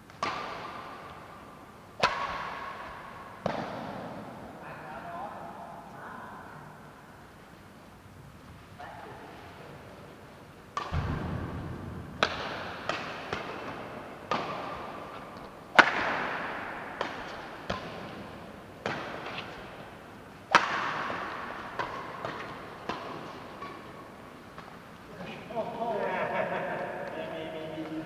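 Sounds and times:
rackets striking shuttlecock: 0.1 - 4.3, 10.7 - 25.0
low thud: 10.9 - 12.8.

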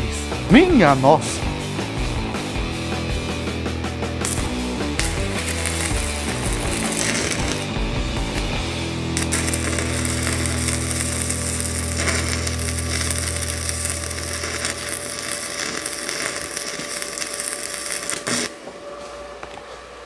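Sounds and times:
welding arc crackling and sizzling: 4.2 - 18.8.

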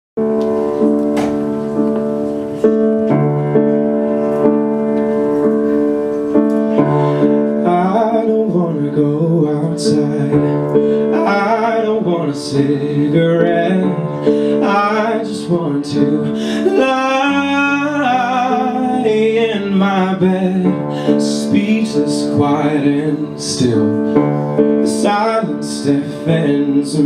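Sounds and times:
piano playing slow chords: 0.2 - 27.0
man singing: 7.2 - 27.0.

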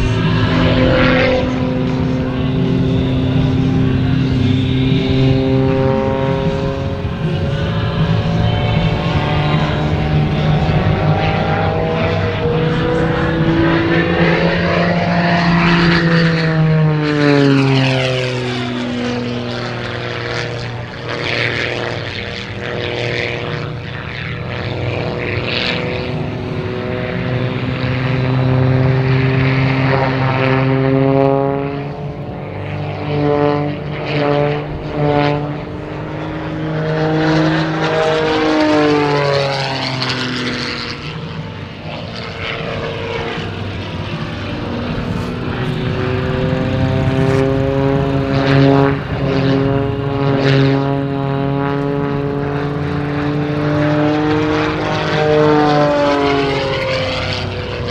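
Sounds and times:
propeller plane engine droning: 0.0 - 57.9.

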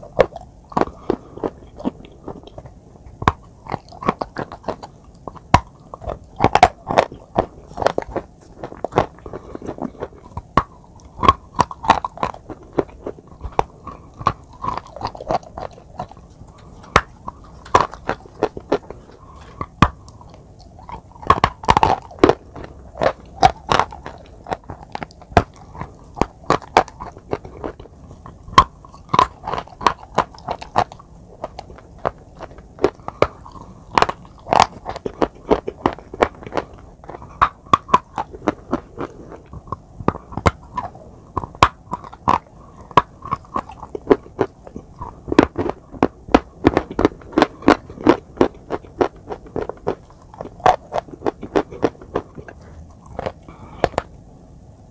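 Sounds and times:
chalk crunching in mouth: 0.0 - 54.1
wet mouth sounds: 0.0 - 54.2.

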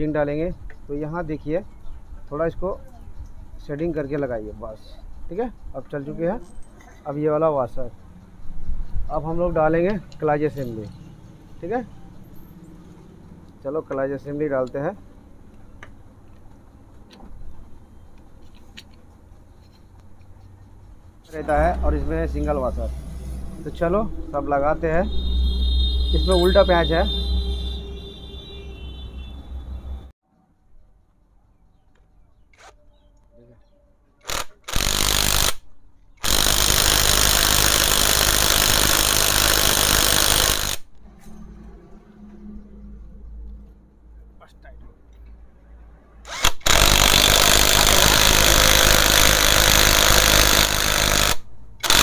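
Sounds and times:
cordless impact wrench running: 34.2 - 35.6, 36.2 - 40.9, 46.3 - 52.0.

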